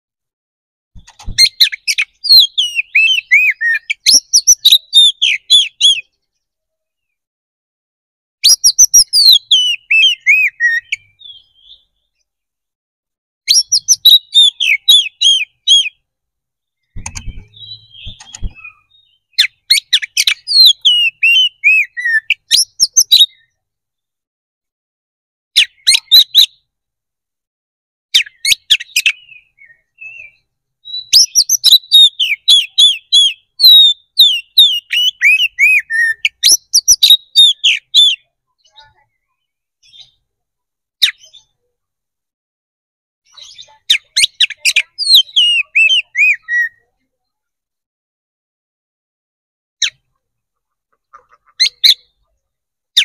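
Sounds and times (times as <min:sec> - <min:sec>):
bird singing whistled notes: 0:01.4 - 0:06.4, 0:08.4 - 0:12.2, 0:13.5 - 0:16.0, 0:16.7 - 0:23.6, 0:28.2 - 0:40.2, 0:43.3 - 0:46.9
soft knocks: 0:17.0 - 0:18.6.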